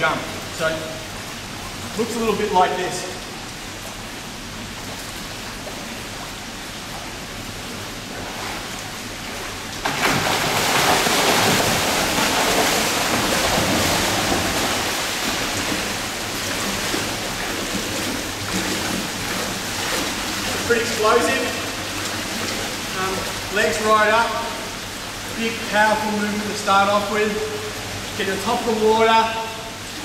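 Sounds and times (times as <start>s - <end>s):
water wash noise: 0.0s - 30.0s
swimmer splashing: 7.6s - 30.0s.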